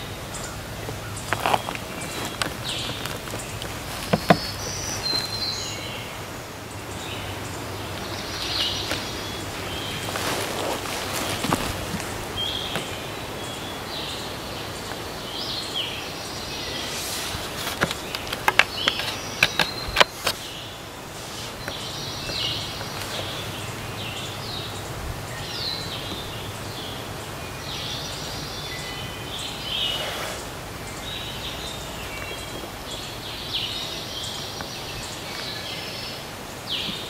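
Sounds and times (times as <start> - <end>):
songbirds chirping: 0.0 - 37.0.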